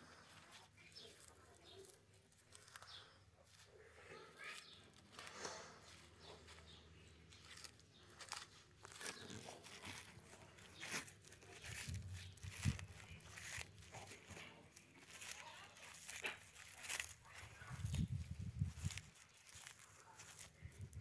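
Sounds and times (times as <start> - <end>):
tortoise crunching a leaf: 0.0 - 21.0.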